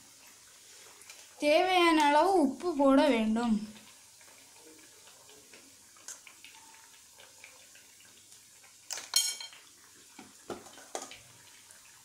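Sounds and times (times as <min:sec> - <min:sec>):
metal kitchen utensils clinking: 0:08.9 - 0:09.6.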